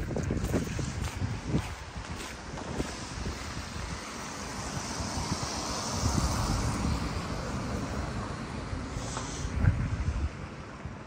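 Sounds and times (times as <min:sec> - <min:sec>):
street ambience: 0:00.0 - 0:11.0
wind buffeting microphone: 0:00.0 - 0:11.0
broad hiss: 0:08.9 - 0:09.6.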